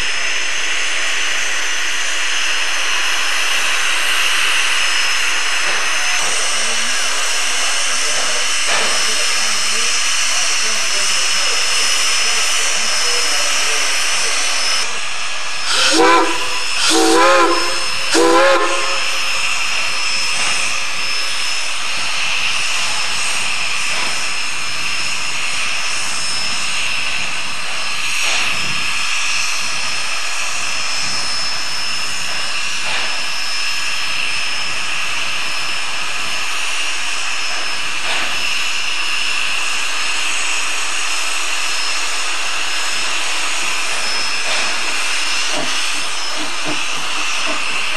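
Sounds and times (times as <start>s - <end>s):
steady steam hiss: 0.0s - 47.9s
steam locomotive whistle blasts: 15.6s - 20.7s.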